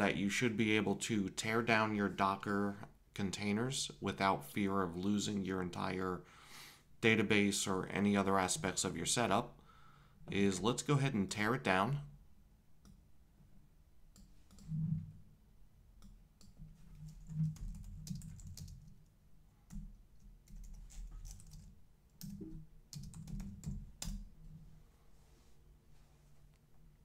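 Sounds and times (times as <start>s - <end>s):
computer keyboard typing: 16.4s - 19.0s, 19.7s - 24.2s.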